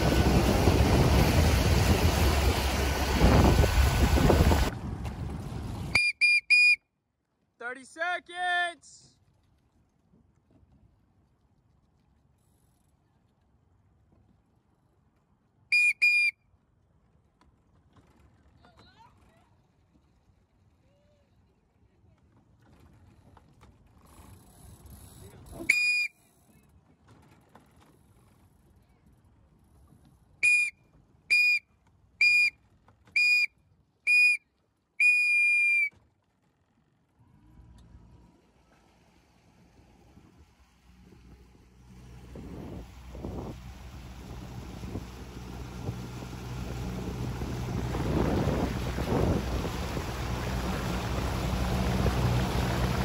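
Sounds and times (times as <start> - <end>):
shrill whistle blasts: 6.0 - 6.8, 15.7 - 16.4, 25.7 - 26.2, 30.4 - 31.6, 32.2 - 32.6, 33.2 - 33.5, 34.1 - 34.4, 35.0 - 35.9.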